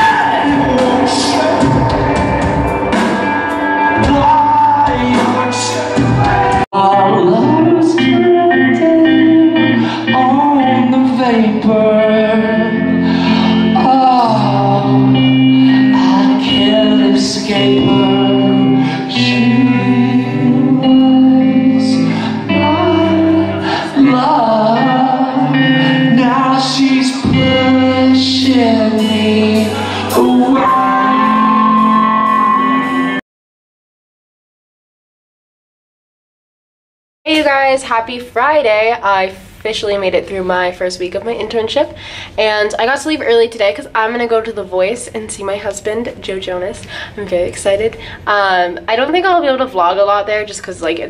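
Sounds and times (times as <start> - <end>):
man singing: 0.0 - 3.1, 3.8 - 33.2
rock music: 0.0 - 33.2.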